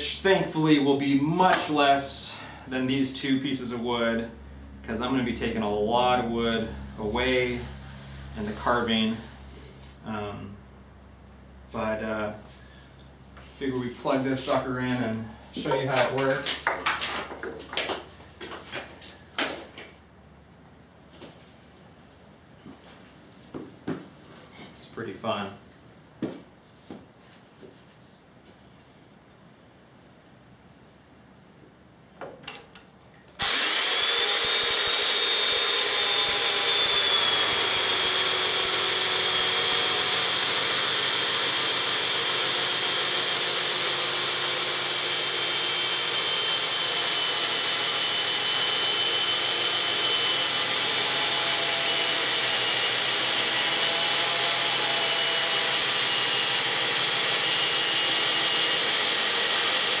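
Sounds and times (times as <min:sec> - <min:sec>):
chainsaw mortiser cutting timber: 0:33.4 - 1:00.0.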